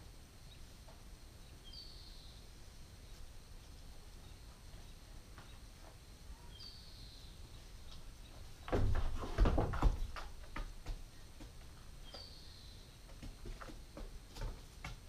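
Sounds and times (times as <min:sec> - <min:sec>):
bird chirp: 0:01.4 - 0:03.2, 0:06.3 - 0:08.7, 0:12.0 - 0:13.1.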